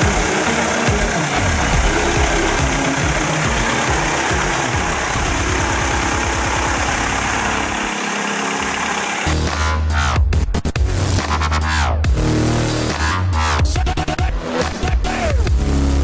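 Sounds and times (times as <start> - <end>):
aircraft piston engine idling: 0.0 - 9.4.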